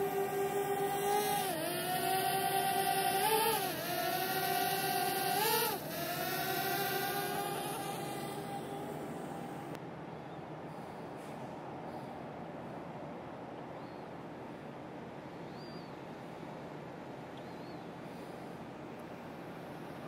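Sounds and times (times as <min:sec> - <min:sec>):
drone propellers whining: 0:00.0 - 0:09.8.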